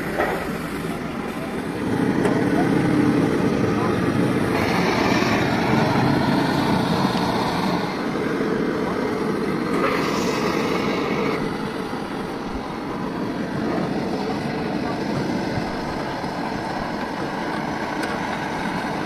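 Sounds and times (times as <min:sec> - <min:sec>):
vehicle traffic rumble: 0:00.0 - 0:19.0
brighter hiss: 0:04.1 - 0:13.4.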